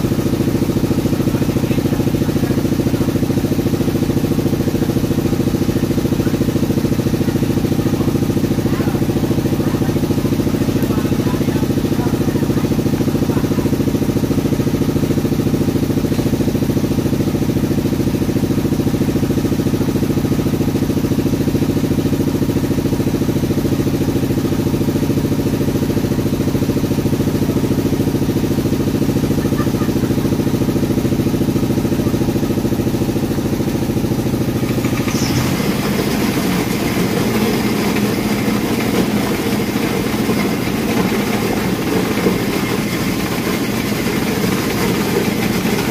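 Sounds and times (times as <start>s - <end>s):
motor humming: 29.1s - 45.9s.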